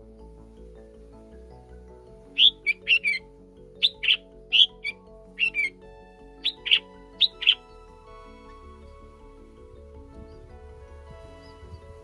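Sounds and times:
birds chirping: 0.0 - 12.0
soft background music: 0.0 - 12.0.

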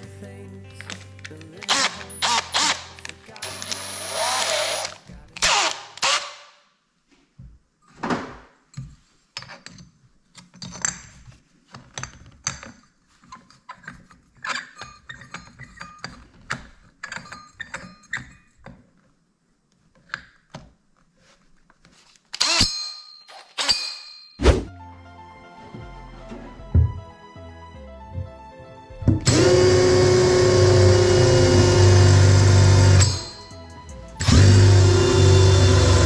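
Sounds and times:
metal tools clinking: 17.0 - 18.5, 22.4 - 24.4, 33.0 - 34.3.

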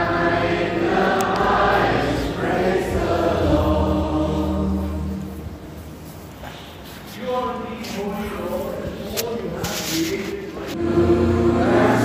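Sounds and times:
choir singing in harmony: 0.0 - 5.9, 10.8 - 12.0.

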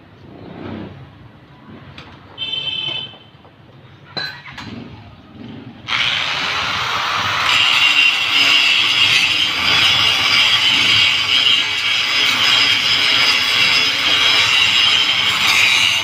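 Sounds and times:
angle grinder running: 5.9 - 16.0.

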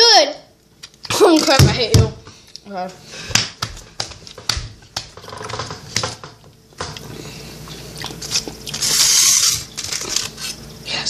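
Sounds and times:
biting and chewing: 5.1 - 10.4
foil wrapper crinkling: 8.2 - 10.6.

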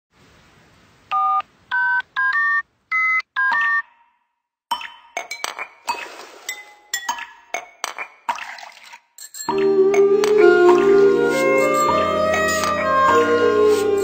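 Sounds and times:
telephone keypad beeps: 1.1 - 4.0.

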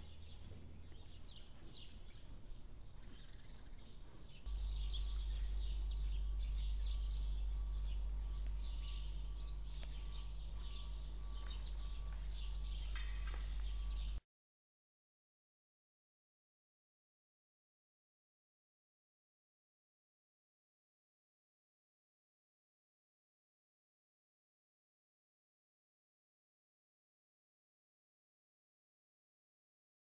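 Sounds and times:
small birds chirping: 0.0 - 14.2
steady low rumble: 0.0 - 14.2.

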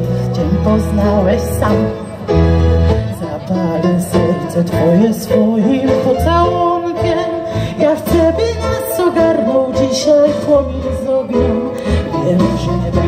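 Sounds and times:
low bass notes: 0.0 - 13.0
woman singing with vibrato: 3.0 - 13.0.

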